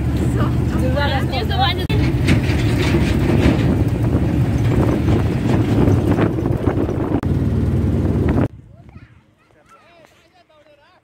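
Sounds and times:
vehicle body rattling: 0.0s - 8.5s
engine and road rumble: 0.0s - 10.0s.

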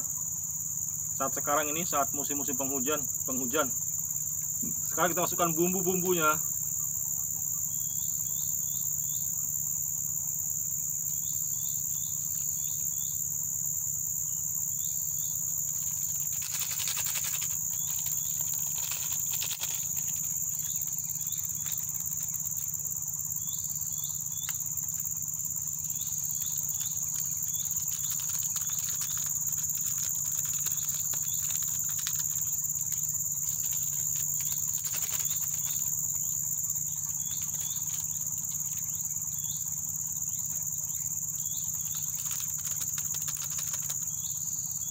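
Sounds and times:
insect chorus: 0.0s - 44.9s
sachets crackling and tearing: 15.8s - 22.7s.

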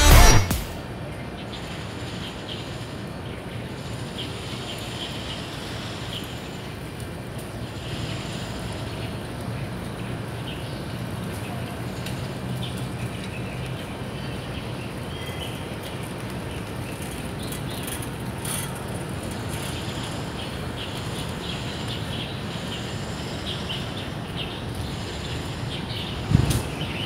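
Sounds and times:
birds chirping: 7.6s - 27.0s.

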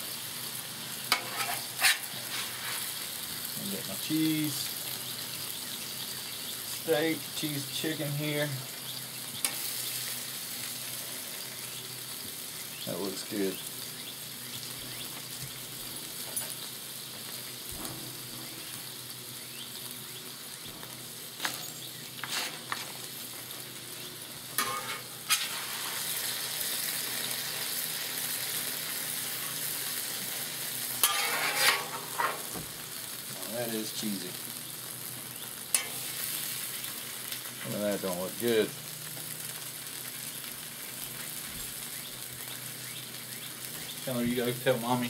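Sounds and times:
food sizzling on griddle: 0.0s - 45.0s
metal spatula scraping cooktop: 1.1s - 3.0s, 22.2s - 23.0s, 24.6s - 26.0s, 31.0s - 32.6s.

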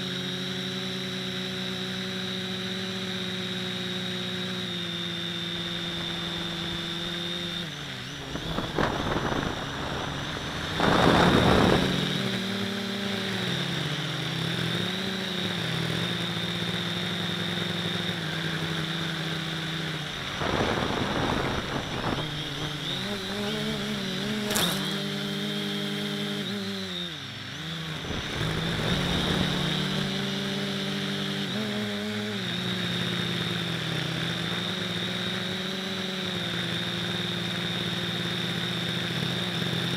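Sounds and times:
drone propellers whining: 0.0s - 39.9s
rushing wind noise: 8.1s - 12.5s, 20.0s - 24.6s, 28.0s - 30.3s.

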